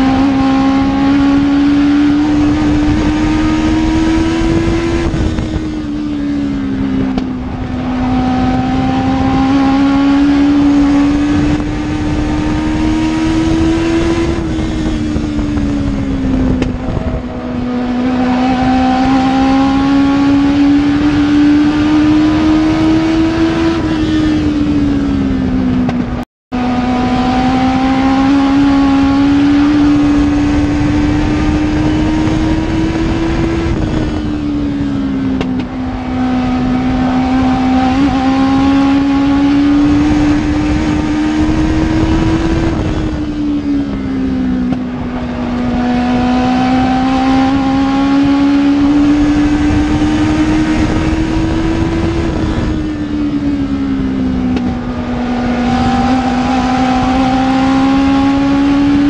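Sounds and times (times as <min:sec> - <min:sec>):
race car engine at speed: 0:00.0 - 0:59.0.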